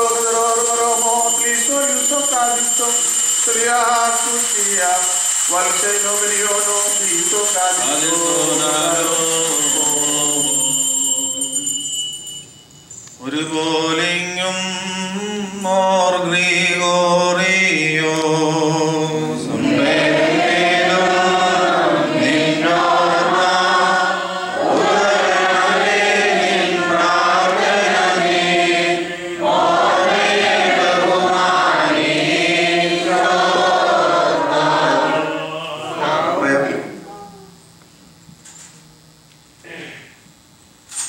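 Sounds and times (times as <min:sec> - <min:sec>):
group of voices chanting: 0:19.4 - 0:36.9
low held drone note: 0:34.4 - 0:38.3.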